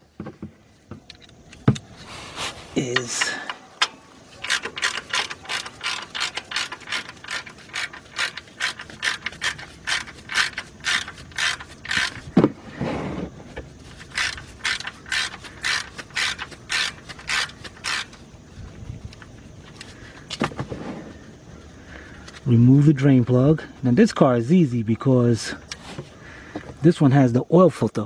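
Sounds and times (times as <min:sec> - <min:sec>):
ratchet wrench clicking: 0:02.9 - 0:12.4, 0:13.9 - 0:18.2.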